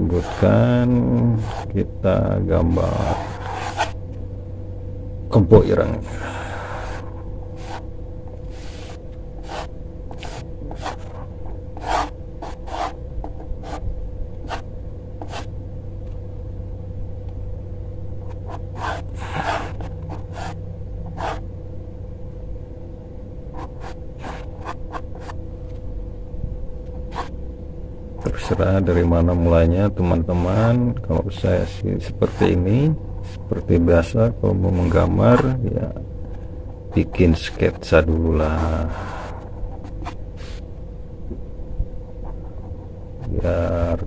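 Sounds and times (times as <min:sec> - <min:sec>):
steady low hum: 0:00.0 - 0:44.0
pencil scratching on paper: 0:00.1 - 0:00.7, 0:01.4 - 0:01.7, 0:03.0 - 0:04.0, 0:07.6 - 0:07.8, 0:08.5 - 0:13.0, 0:13.6 - 0:13.8, 0:15.2 - 0:15.5, 0:18.3 - 0:21.4, 0:23.6 - 0:25.4, 0:27.1 - 0:27.3.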